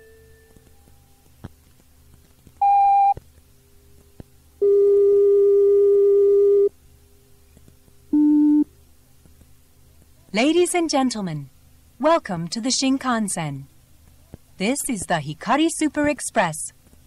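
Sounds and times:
tape hiss: 0.0 - 17.0
electronic tones: 2.6 - 3.2.

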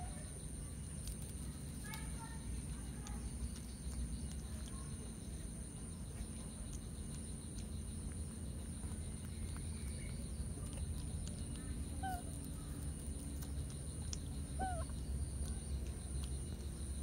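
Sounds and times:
chirping animal calls: 9.4 - 17.0.

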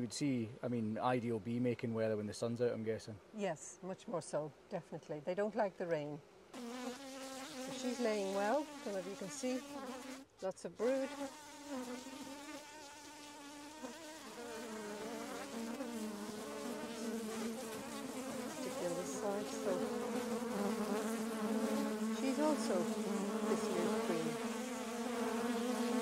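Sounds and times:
honeybees buzzing: 6.5 - 26.0.

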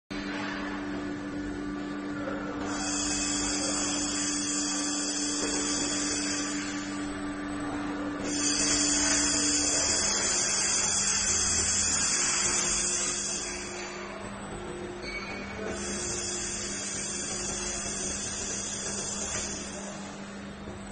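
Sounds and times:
low machine hum: 0.1 - 20.9
laser welding hiss: 2.6 - 7.1, 8.2 - 13.9, 15.6 - 20.1.

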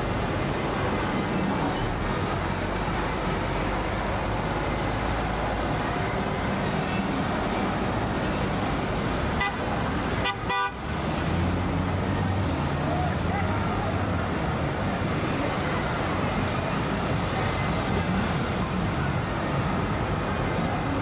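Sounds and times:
traffic din: 0.0 - 21.0
car horn toots: 10.2 - 10.8.

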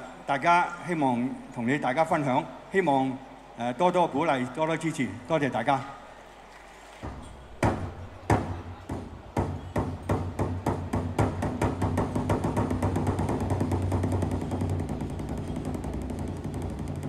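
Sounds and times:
barrel drum beaten with sticks: 7.6 - 17.0.

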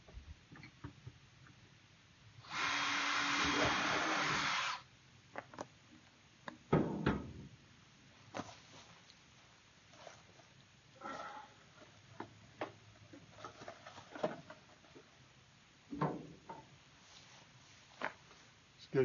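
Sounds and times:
cordless drill boring into plastic: 2.4 - 4.8.

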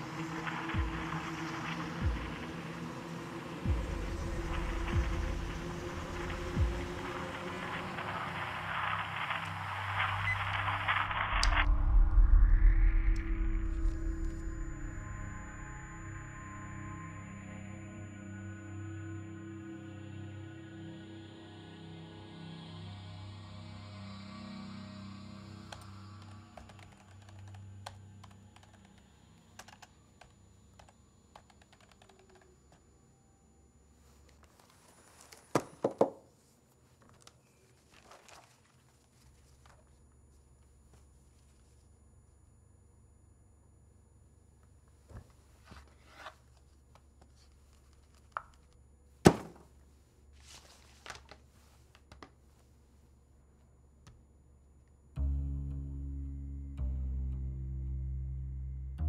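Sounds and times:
low background music: 0.0 - 29.4, 55.2 - 59.0
paper rustling: 36.3 - 40.0, 45.1 - 53.0
rubber stamp thumping on paper: 49.3 - 49.7.

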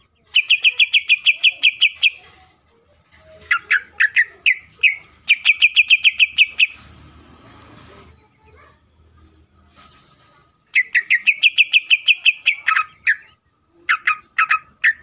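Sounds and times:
bird calling sharp notes: 0.4 - 2.2, 3.5 - 6.8, 10.7 - 15.0.

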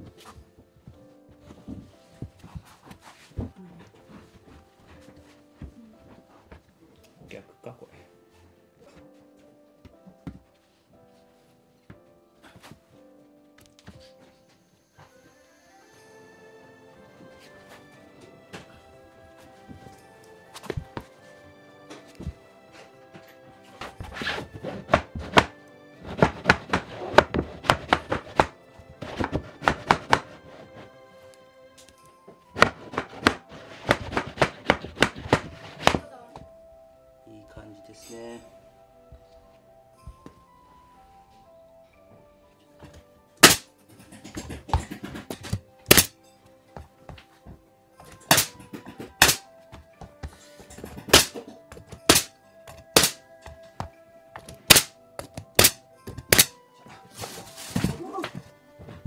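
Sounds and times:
background music: 0.0 - 59.0
hammer knocking on wooden boards: 24.8 - 30.4.

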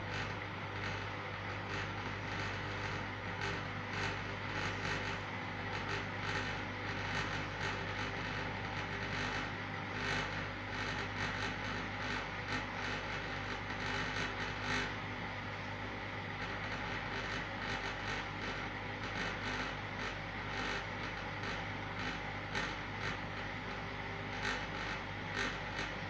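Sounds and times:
washing machine humming: 0.0 - 26.0.

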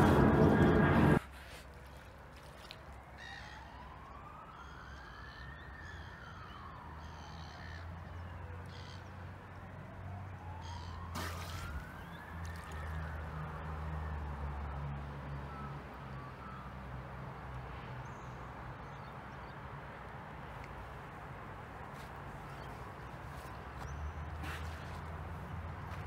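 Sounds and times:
steady low hum: 0.0 - 1.2
faint emergency siren wailing: 0.0 - 17.8.

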